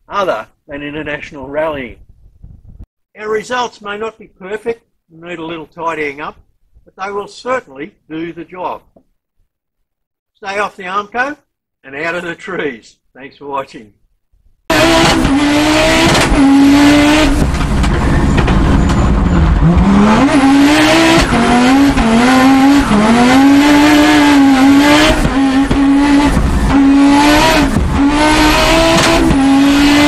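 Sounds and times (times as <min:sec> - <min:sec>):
race car engine revving: 0:14.7 - 0:30.0.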